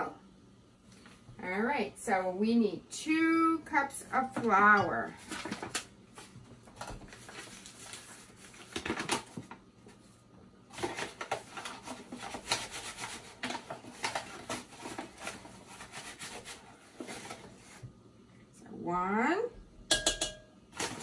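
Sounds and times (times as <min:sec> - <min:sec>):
paper bag crinkling: 0:05.2 - 0:09.6, 0:10.7 - 0:17.8.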